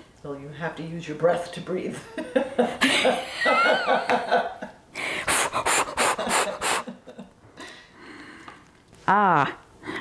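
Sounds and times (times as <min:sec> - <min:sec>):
women laughing: 0:02.0 - 0:04.8, 0:05.6 - 0:07.3.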